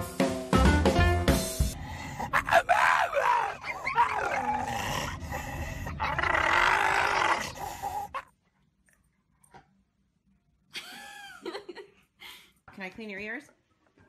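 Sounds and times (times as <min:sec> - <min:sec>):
dog howling: 0:02.0 - 0:08.3.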